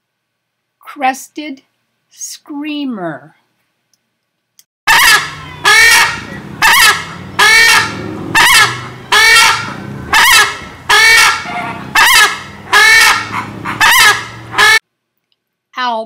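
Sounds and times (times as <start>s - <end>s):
bird calling loudly: 4.9s - 14.8s.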